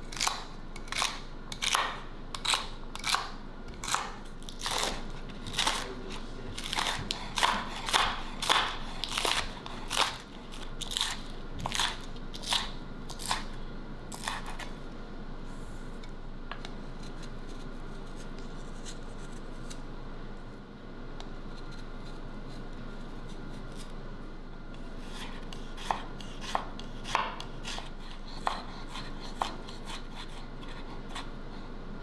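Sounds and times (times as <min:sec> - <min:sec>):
knife crunching through vegetables: 0:00.0 - 0:14.7
steady low hum: 0:00.0 - 0:32.0.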